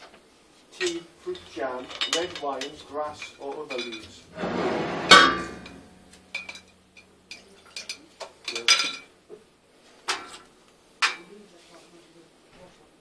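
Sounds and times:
short burst of noise: 4.3 - 6.3.

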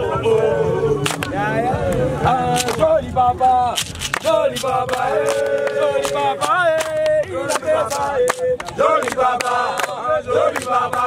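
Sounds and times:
men chanting in unison: 0.0 - 11.0
hand claps: 1.0 - 1.4, 2.5 - 2.8, 3.8 - 11.0.

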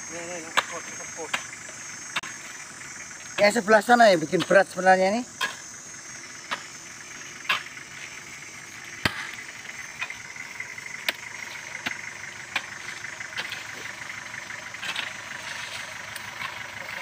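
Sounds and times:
engine idling: 0.0 - 17.0
hoes chopping into wet soil: 0.4 - 1.5, 6.4 - 6.8, 9.0 - 10.2.

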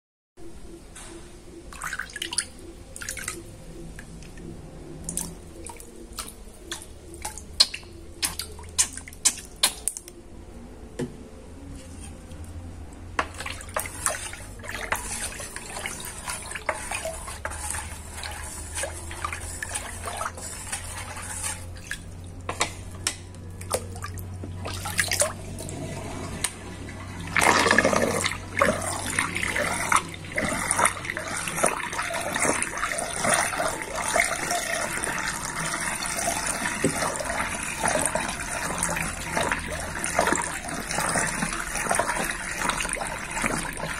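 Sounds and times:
low steady hum: 0.4 - 43.9
water drips and plops: 5.0 - 10.1
water swirling down a drain: 13.3 - 22.5, 23.6 - 43.9.

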